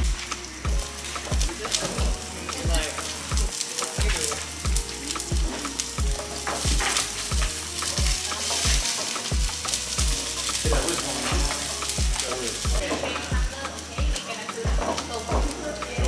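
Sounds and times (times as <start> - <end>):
food sizzling in woks: 0.0 - 16.0
low drum beat: 0.0 - 16.0
spatulas scraping pans: 5.1 - 12.0.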